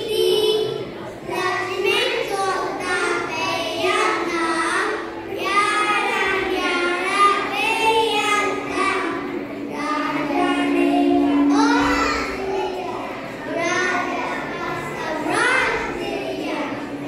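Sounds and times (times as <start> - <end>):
children singing: 0.0 - 17.0
steady held note: 4.9 - 17.0.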